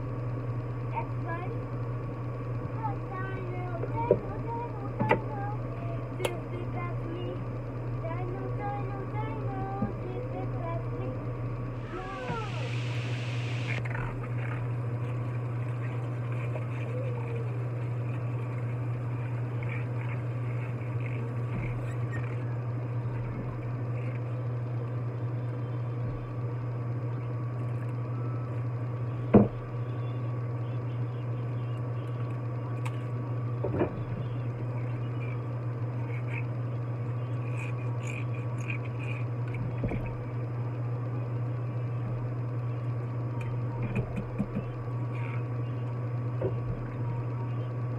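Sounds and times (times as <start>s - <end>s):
steady low hum: 0.0s - 47.9s.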